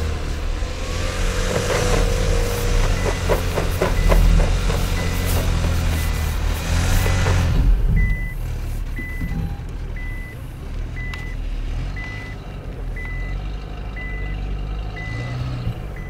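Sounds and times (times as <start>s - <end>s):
engine and tyre rush: 0.0s - 16.0s
low engine hum: 0.0s - 16.0s
reversing warning beeps: 2.7s - 10.4s, 11.0s - 12.4s, 13.0s - 13.4s, 14.0s - 16.0s.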